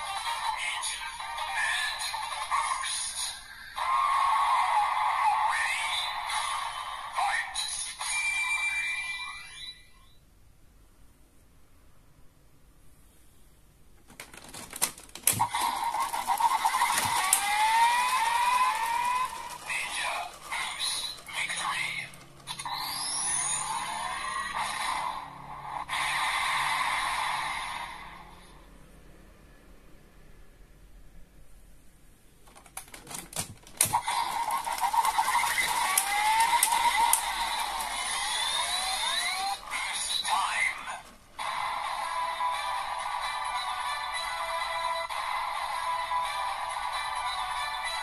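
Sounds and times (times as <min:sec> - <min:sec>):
toy electronic sound effect: 0:00.0 - 0:10.2, 0:15.2 - 0:28.2, 0:33.7 - 0:48.0
plastic toy clicks: 0:14.1 - 0:23.6, 0:32.5 - 0:40.2.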